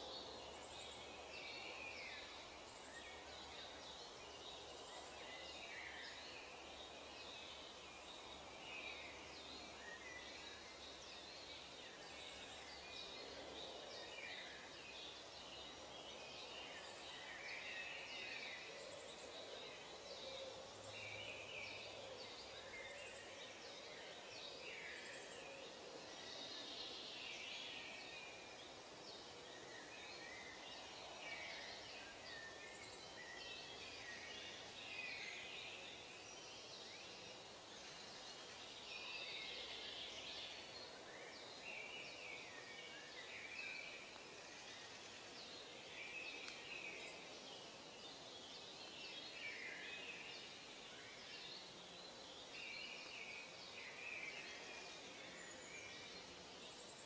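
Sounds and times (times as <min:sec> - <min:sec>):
small birds chirping: 0:00.0 - 0:57.0
steady background hiss: 0:00.0 - 0:57.0.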